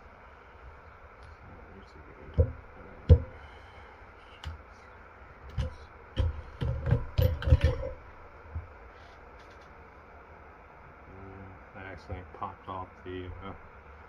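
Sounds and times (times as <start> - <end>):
metal parts knocking and clicking: 5.5 - 8.0.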